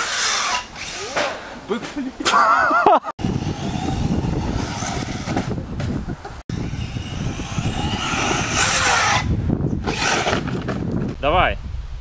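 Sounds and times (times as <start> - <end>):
electric motor running: 3.2 - 5.6, 6.5 - 10.7
wind noise: 3.2 - 12.0.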